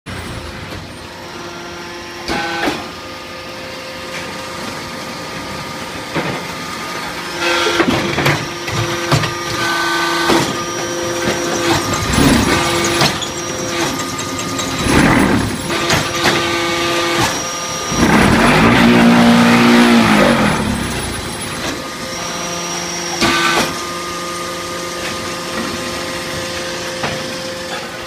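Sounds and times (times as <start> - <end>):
machine humming: 0.1 - 28.0
metallic clanks and knocks: 11.3 - 17.3.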